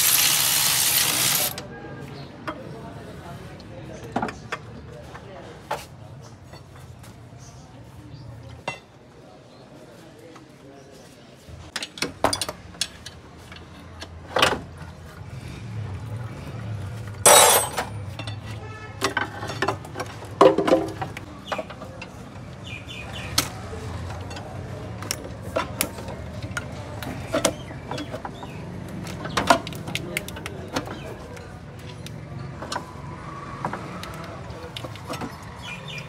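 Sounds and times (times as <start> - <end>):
clicks and knocks handling parts: 33.6 - 35.5.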